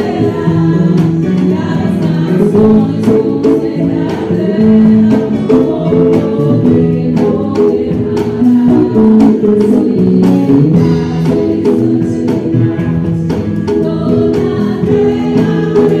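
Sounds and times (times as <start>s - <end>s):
electric guitar lead: 0.0s - 16.0s
steady beat: 0.0s - 16.0s
worship song singing: 0.0s - 16.0s.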